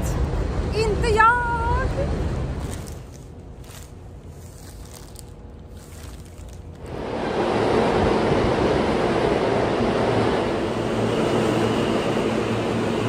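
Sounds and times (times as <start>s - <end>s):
subway train rumbling: 0.0s - 3.5s, 6.5s - 13.0s.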